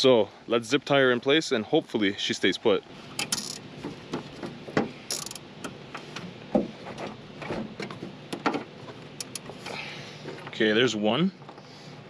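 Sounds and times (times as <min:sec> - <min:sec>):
zip tie ratcheting clicks: 0:05.1 - 0:05.4.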